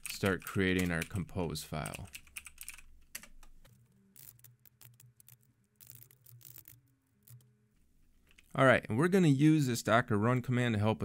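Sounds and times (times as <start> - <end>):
computer keyboard typing: 0.0 - 1.2, 1.8 - 3.5, 4.2 - 7.5.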